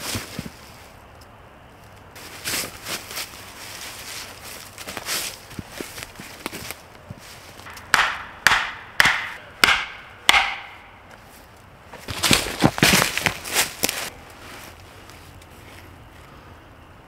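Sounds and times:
wood struck hard: 0:07.6 - 0:11.1
knocks and crackles: 0:07.6 - 0:11.3.

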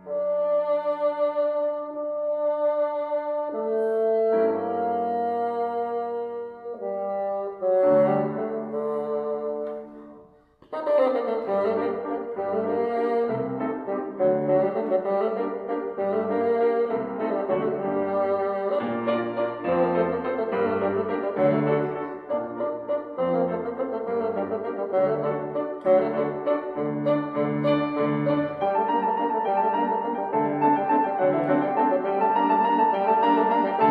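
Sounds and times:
bassoon: 0:00.0 - 0:33.9
grand piano: 0:00.0 - 0:33.9.

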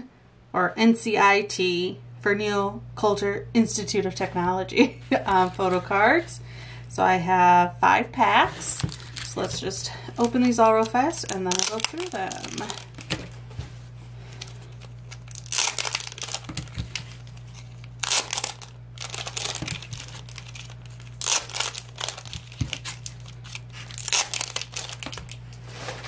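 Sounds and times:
wrappers crinkling and tearing: 0:05.1 - 0:05.9, 0:08.5 - 0:26.0.

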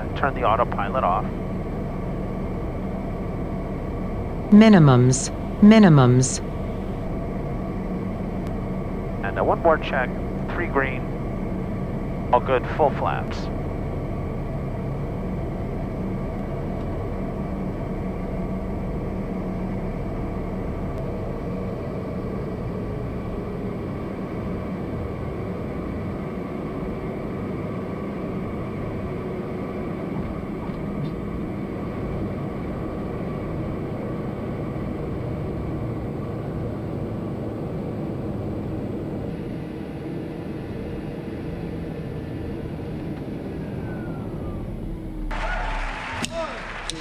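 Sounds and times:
turboprop engine humming: 0:00.0 - 0:47.0.

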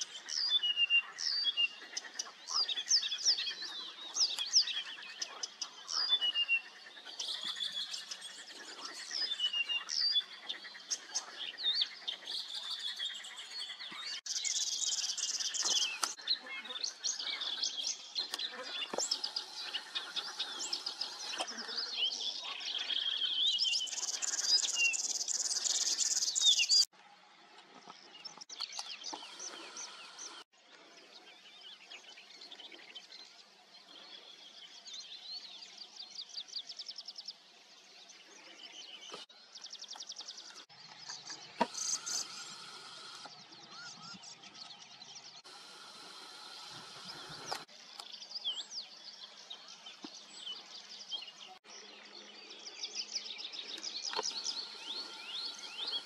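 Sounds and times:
songbirds singing: 0:00.0 - 0:26.9, 0:27.8 - 0:56.0.

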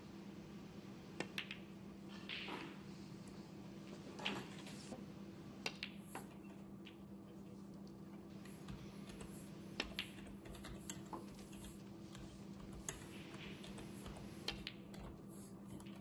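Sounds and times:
steady low hum: 0:00.0 - 0:16.0
snooker balls clicking: 0:01.2 - 0:02.8, 0:05.6 - 0:16.0.

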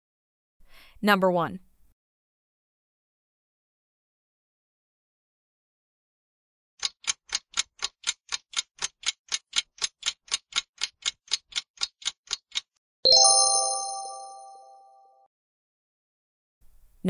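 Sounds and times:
clock ticking: 0:06.8 - 0:12.7
bright multi-tone chime: 0:13.1 - 0:15.0.

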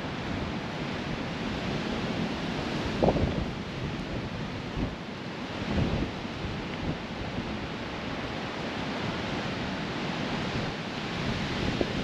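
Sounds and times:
strong wind on microphone: 0:01.1 - 0:12.0.

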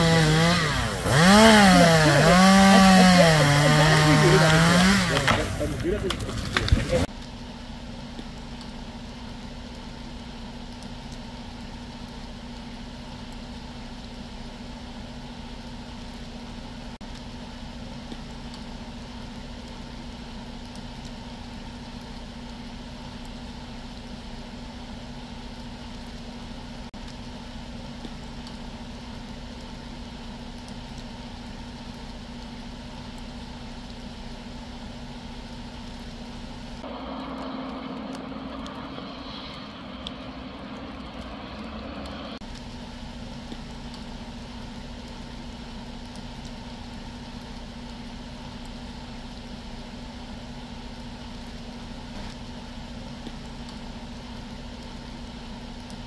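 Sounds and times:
drone rotors hovering: 0:00.0 - 0:11.5, 0:34.8 - 0:46.2.

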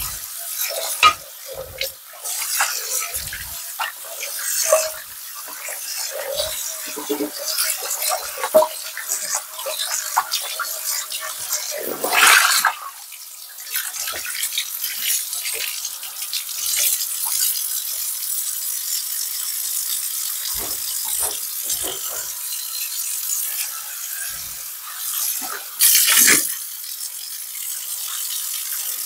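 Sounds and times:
pan clattering: 0:00.0 - 0:10.6, 0:20.5 - 0:22.5
faucet water splashing on pan: 0:00.0 - 0:29.0.

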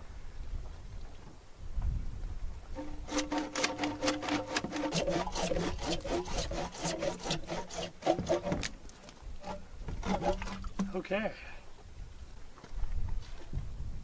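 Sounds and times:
squeaky rubbing on plastic pipe: 0:02.8 - 0:11.0.

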